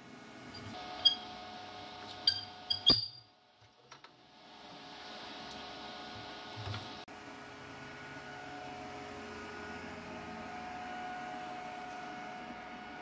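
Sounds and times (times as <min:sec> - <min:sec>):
metal pivot squeaking: 0:00.6 - 0:01.3, 0:02.1 - 0:03.2.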